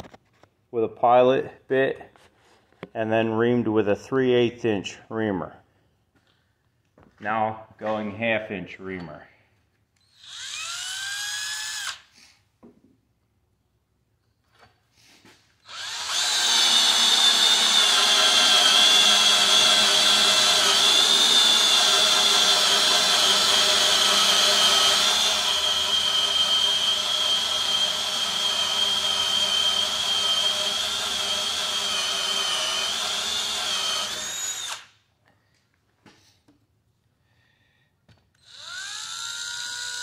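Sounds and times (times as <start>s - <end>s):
power drill whining: 10.0s - 12.2s, 15.6s - 35.0s, 38.4s - 40.0s.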